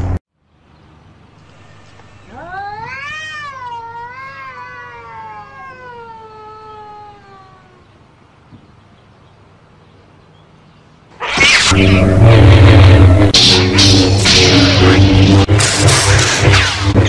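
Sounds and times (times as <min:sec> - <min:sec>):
cat yowling: 0:02.3 - 0:07.8.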